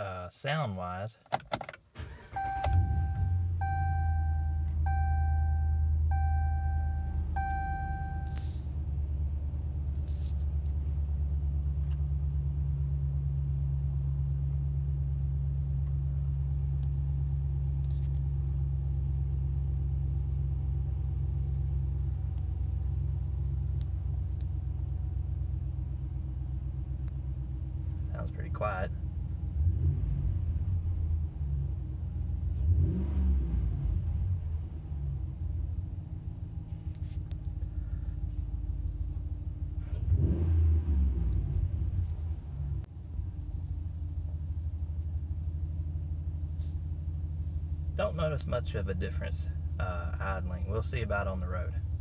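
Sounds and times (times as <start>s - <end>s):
dashboard chime beeping: 2.4s - 8.4s.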